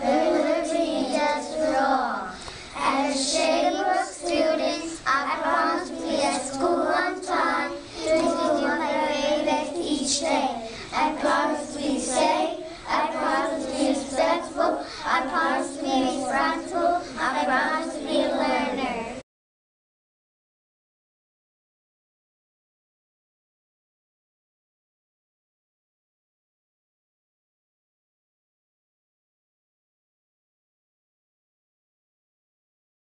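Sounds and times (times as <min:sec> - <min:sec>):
children singing in unison: 0:00.0 - 0:19.2.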